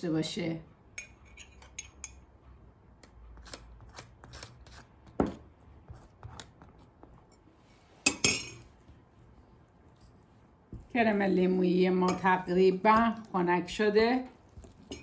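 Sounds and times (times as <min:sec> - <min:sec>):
metal spoon scraping and tapping: 0:01.0 - 0:02.3, 0:03.4 - 0:08.8, 0:12.0 - 0:13.4, 0:14.5 - 0:15.0.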